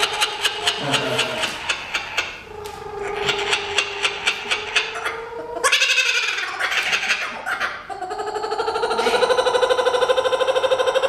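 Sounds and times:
kookaburra laughing call: 0:00.0 - 0:11.0.

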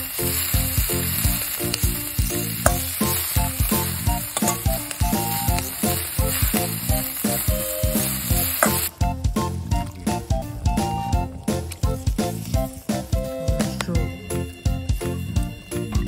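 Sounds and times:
bean sprouts sizzling in a pan: 0:00.0 - 0:08.9
background music with steady beat: 0:00.0 - 0:16.0
spoon stirring in iron pan: 0:01.1 - 0:08.9.

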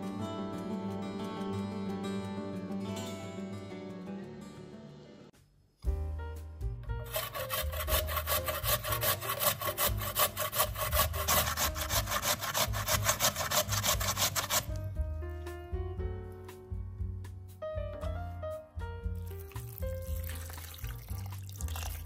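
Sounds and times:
soft background music: 0:00.0 - 0:22.0
potato grating on metal grater: 0:07.1 - 0:14.8.

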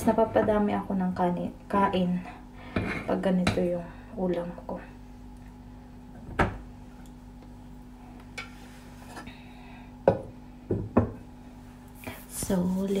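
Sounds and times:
steady low hum: 0:00.0 - 0:13.0
dishes knocking on table: 0:06.2 - 0:06.6, 0:10.0 - 0:11.2.

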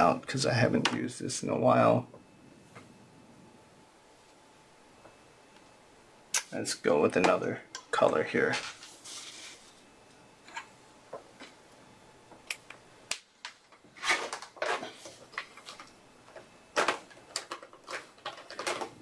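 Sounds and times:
markers clattering and rustling: 0:13.4 - 0:19.0.

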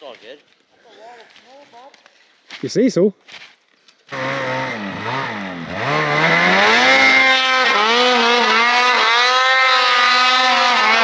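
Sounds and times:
snowmobile engine revving: 0:04.1 - 0:11.0.

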